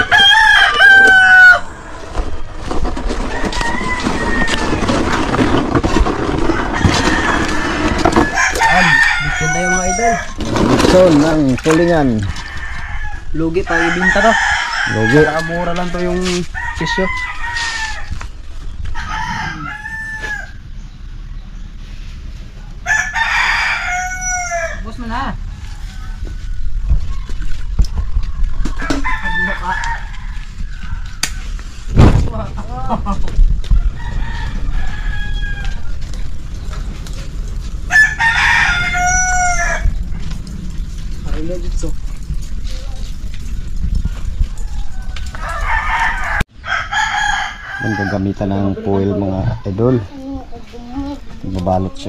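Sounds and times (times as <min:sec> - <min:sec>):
rooster crowing: 0:00.0 - 0:02.1, 0:03.2 - 0:05.0, 0:06.4 - 0:10.4, 0:12.1 - 0:18.2, 0:18.9 - 0:20.7, 0:22.8 - 0:26.6, 0:28.8 - 0:31.5, 0:33.7 - 0:36.0, 0:37.8 - 0:40.0, 0:44.2 - 0:49.6
scraping and small knocks: 0:02.0 - 0:09.2, 0:10.2 - 0:13.0, 0:25.6 - 0:29.2
charcoal lumps clattering: 0:02.0 - 0:12.5.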